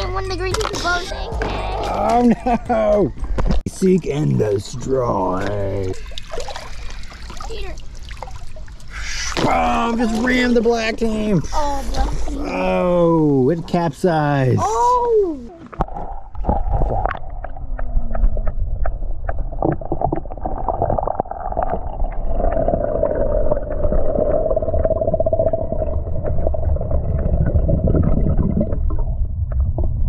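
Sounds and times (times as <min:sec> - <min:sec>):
underwater clicks: 0:15.7 - 0:21.8
bubbling underwater: 0:15.7 - 0:30.0
underwater rumble of moving water: 0:15.7 - 0:30.0.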